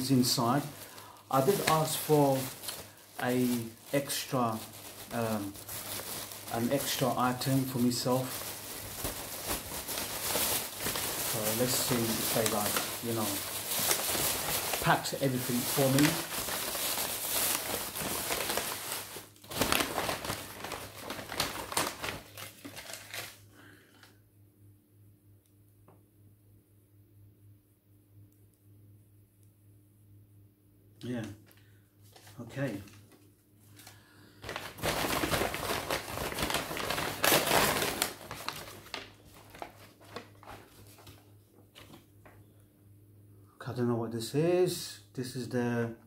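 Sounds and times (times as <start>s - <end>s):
plastic bag crinkling and rustling: 0.0s - 23.4s, 31.5s - 42.4s.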